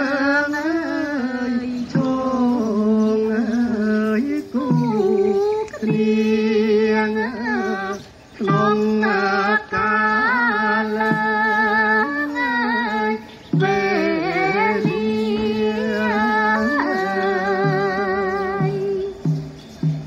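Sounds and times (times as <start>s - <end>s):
person singing slow melody: 0.0s - 20.0s.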